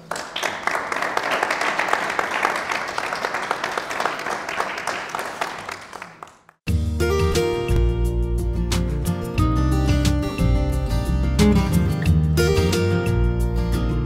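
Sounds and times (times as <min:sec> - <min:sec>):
audience applauding: 0:00.0 - 0:06.6
music: 0:06.7 - 0:14.0.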